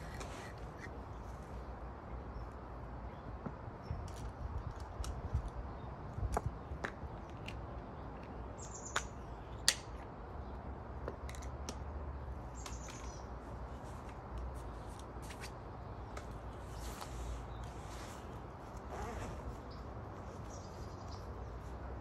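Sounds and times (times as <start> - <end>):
bird chirping: 8.6 - 9.6, 19.6 - 21.7.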